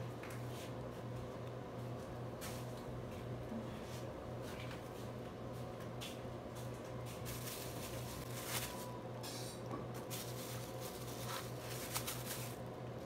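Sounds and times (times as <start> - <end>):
cheese slices rustling: 7.1 - 9.0, 9.9 - 12.8.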